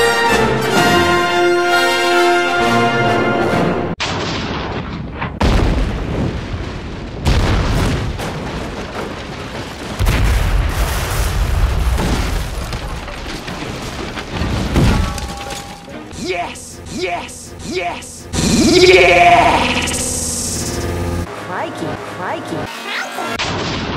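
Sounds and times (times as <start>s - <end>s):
building explosions with rumble: 4.0s - 15.2s, 23.4s - 23.9s.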